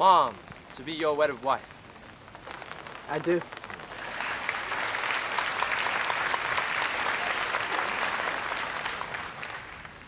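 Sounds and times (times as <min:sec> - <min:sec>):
group clapping: 0:03.8 - 0:10.0.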